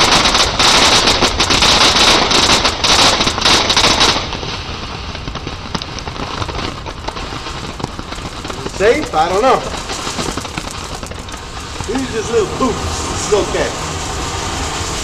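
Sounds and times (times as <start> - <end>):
firework crackling hiss: 0.0 - 15.0
firework pops: 0.0 - 15.0.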